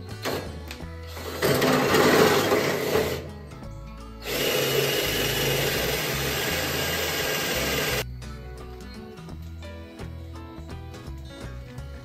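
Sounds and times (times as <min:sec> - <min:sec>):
drill boring into metal: 0:01.2 - 0:03.2, 0:04.2 - 0:08.0.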